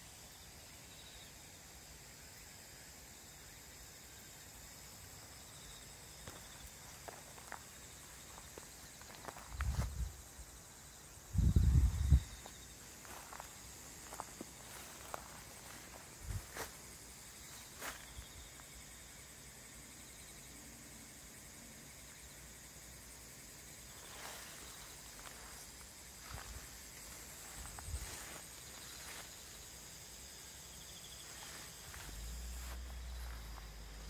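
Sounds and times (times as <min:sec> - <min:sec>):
insects singing: 0:03.2 - 0:34.0
footsteps through grass: 0:06.2 - 0:10.2, 0:11.4 - 0:18.6, 0:23.9 - 0:30.3, 0:31.0 - 0:34.0.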